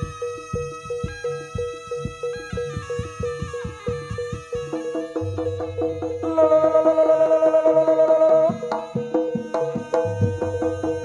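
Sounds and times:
hand drum strokes: 0:00.0 - 0:11.0
struck pitched gamelan notes: 0:03.9 - 0:11.0.

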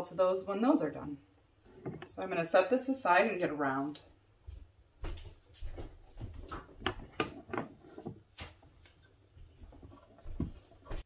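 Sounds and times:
painting supplies knocking: 0:06.4 - 0:08.6.

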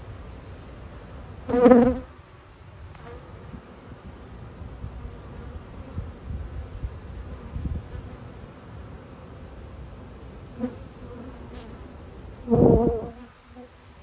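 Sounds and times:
bees buzzing: 0:01.4 - 0:02.1, 0:03.0 - 0:14.0
bee flying past: 0:01.5 - 0:02.1, 0:04.9 - 0:14.0.

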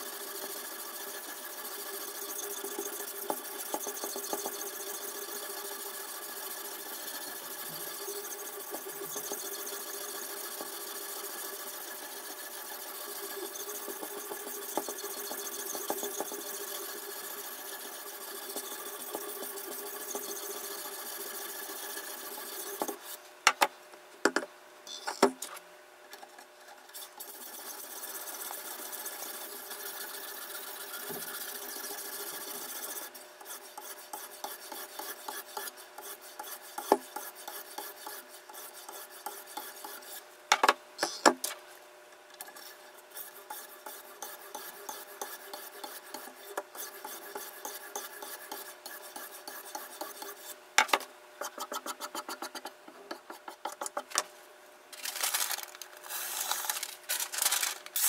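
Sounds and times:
sharpening stone scraping knife: 0:43.1 - 0:50.5.

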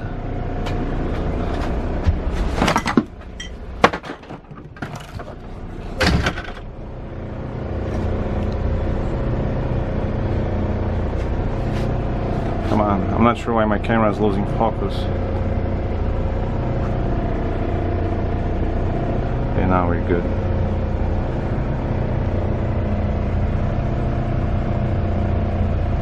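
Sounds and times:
diesel engine idling: 0:00.0 - 0:03.8, 0:05.0 - 0:26.0
handling knocks and rustles: 0:00.6 - 0:06.6.

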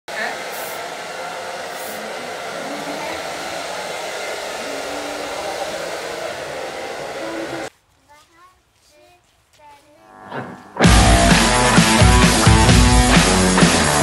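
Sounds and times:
hair dryer blowing: 0:00.1 - 0:07.7, 0:10.8 - 0:14.0
hairspray hiss: 0:00.2 - 0:07.7.

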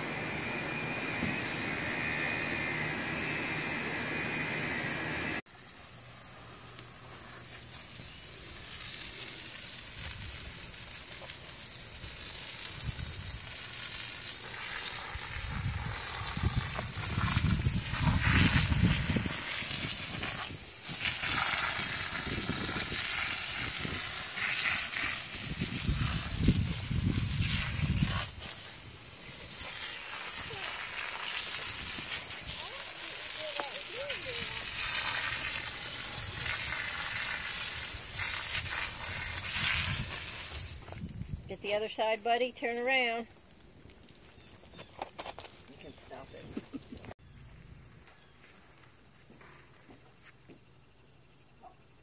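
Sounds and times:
motor hum: 0:00.0 - 0:08.6
hose nozzle spraying water: 0:05.5 - 0:44.2.

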